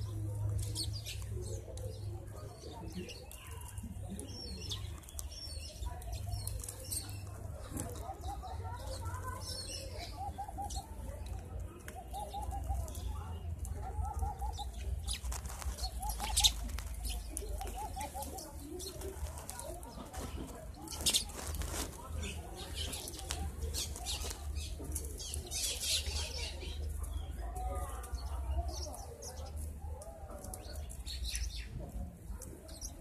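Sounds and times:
sparrows chirping: 0:00.0 - 0:33.0
doves cooing: 0:05.7 - 0:26.4.

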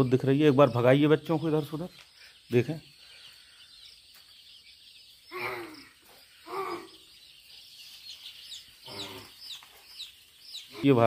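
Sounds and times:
chicks peeping: 0:00.0 - 0:11.0
short loud chick calls: 0:08.2 - 0:11.0.

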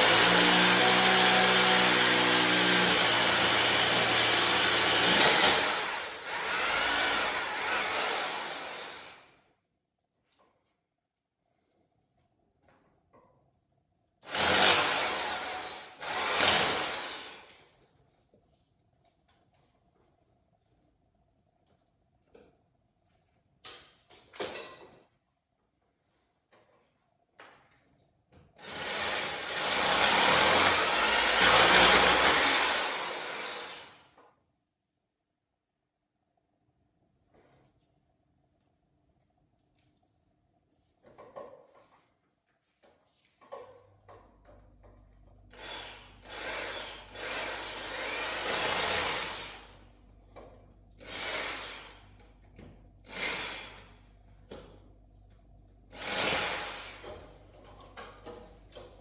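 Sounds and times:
electric drill boring: 0:00.0 - 0:09.3, 0:14.2 - 0:17.6, 0:28.6 - 0:34.0, 0:45.5 - 0:49.8, 0:51.0 - 0:52.1, 0:53.0 - 0:53.9, 0:55.9 - 0:57.2.

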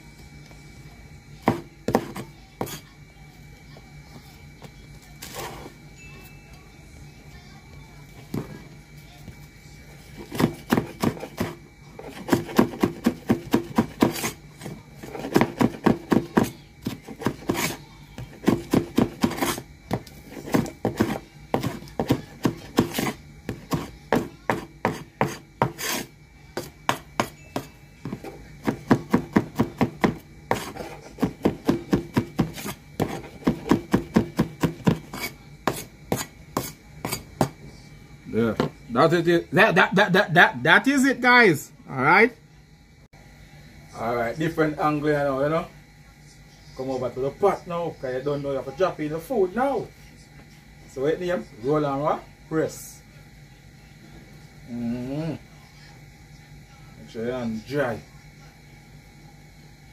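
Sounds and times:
cleaver chopping on wooden board: 0:10.2 - 0:14.4, 0:15.2 - 0:17.8, 0:18.4 - 0:37.6.

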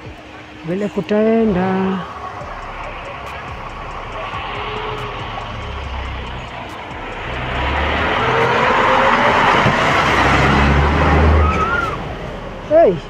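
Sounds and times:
bus driving past: 0:00.0 - 0:13.0.

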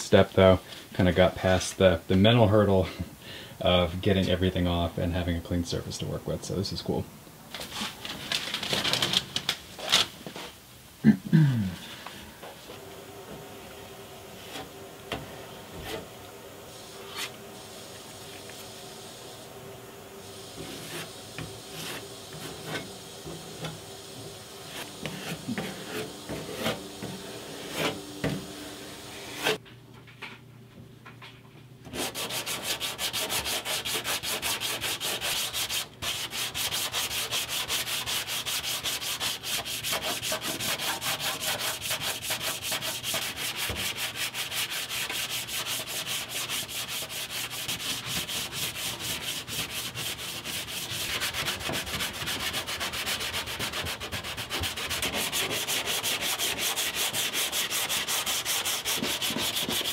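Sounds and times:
sanding block rasping: 0:20.6 - 0:23.4, 0:24.7 - 0:28.1, 0:31.9 - 0:59.9.

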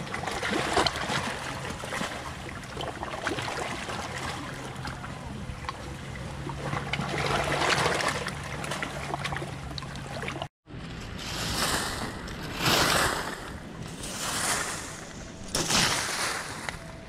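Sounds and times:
small waves lapping on rocks: 0:00.0 - 0:10.5, 0:11.2 - 0:16.9
broom sweeping gravelly dirt: 0:11.0 - 0:16.8.

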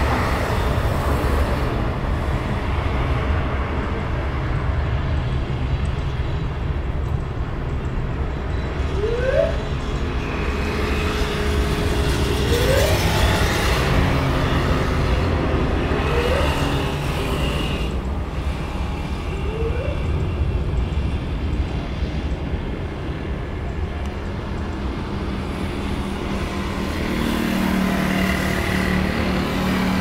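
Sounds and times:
motorbikes and cars passing: 0:00.0 - 0:30.0
short rising whine: 0:08.8 - 0:10.0.

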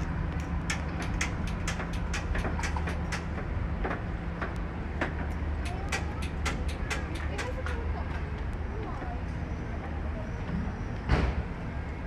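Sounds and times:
sharp clicks and ticks: 0:00.0 - 0:08.6.

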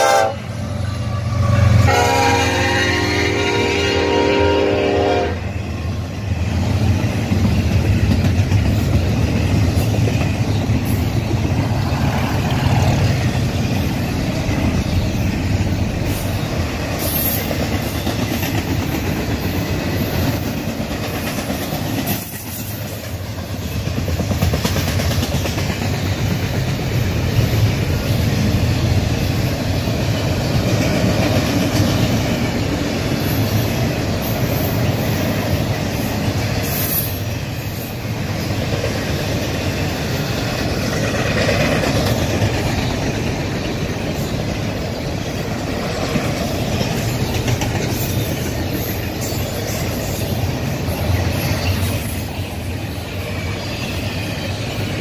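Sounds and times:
train horn: 0:00.0 - 0:05.6
train wheels rumbling on rails: 0:00.0 - 0:55.0
wheels clacking over rail joints: 0:06.0 - 0:52.4.

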